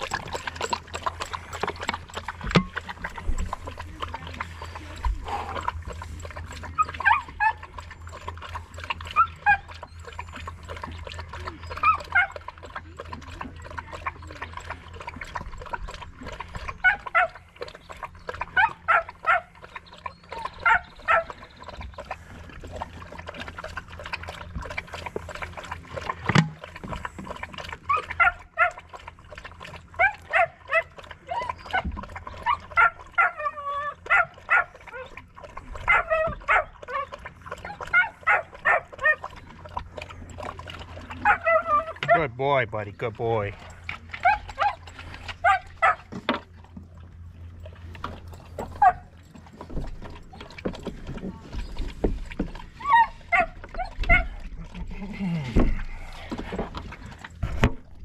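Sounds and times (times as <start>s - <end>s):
dog whining: 30.0s - 35.2s, 35.9s - 39.2s, 41.2s - 42.2s, 52.8s - 54.4s.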